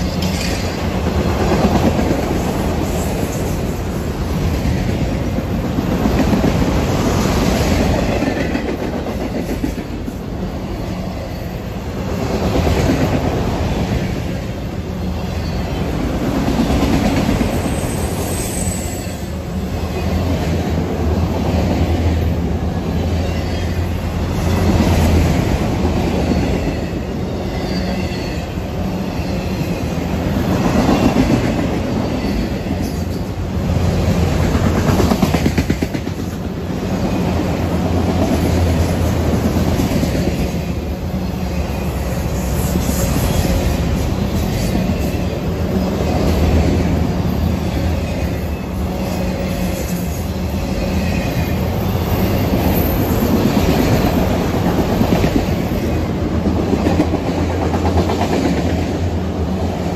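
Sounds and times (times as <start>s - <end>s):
train wheels rumbling on rail: 0.0s - 59.9s
high-pitched wheel squeal: 17.7s - 19.3s.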